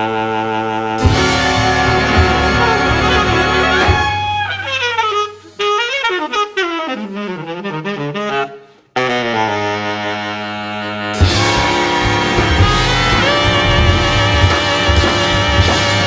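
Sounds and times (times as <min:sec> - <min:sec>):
jazz big band playing: 0:00.0 - 0:16.0
reeds playing bending phrases: 0:01.0 - 0:05.6, 0:11.2 - 0:16.0.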